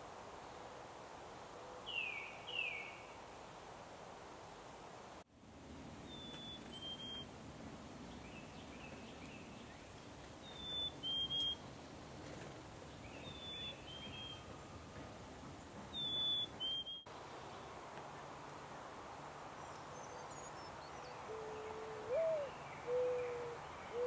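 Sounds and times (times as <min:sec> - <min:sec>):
faint bird twittering: 0:06.1 - 0:07.3, 0:10.4 - 0:11.6.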